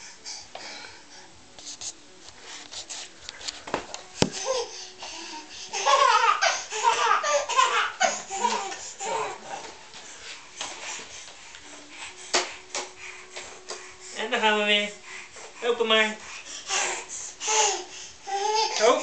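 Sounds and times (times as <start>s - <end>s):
baby giggling: 5.7s - 9.3s.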